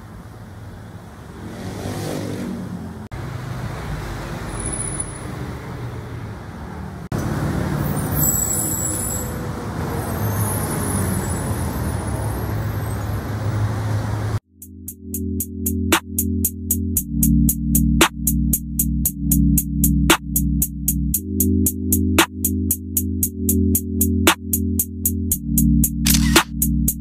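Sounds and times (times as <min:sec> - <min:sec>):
vehicle passing by: 0:00.0 - 0:08.3, 0:09.4 - 0:14.4
rumble of passing cars: 0:00.0 - 0:14.4.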